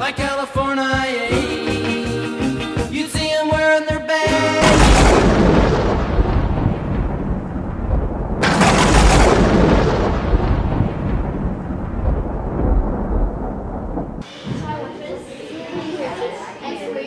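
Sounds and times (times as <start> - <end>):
thunder cracks with deep rumble: 4.6 - 14.2.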